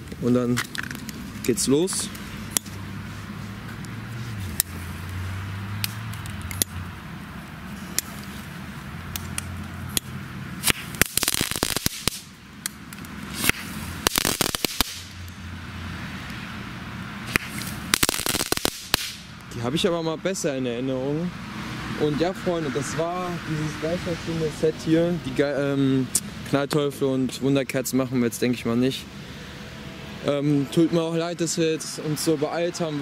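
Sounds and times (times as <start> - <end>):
heavy rain hiss: 10.2 - 19.8
firework crackling balls popping: 10.6 - 15.4, 17.3 - 19.4.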